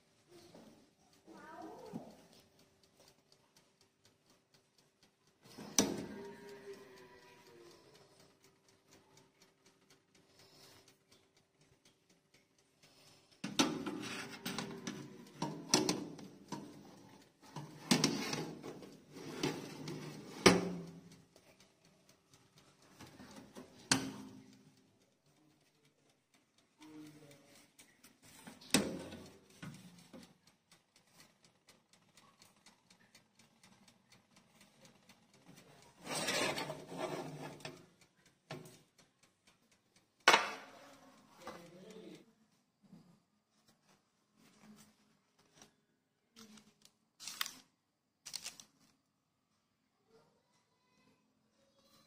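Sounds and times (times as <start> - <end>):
metal tray scraping on oven rack: 13.6 - 16.2, 17.6 - 20.8, 36.0 - 37.8.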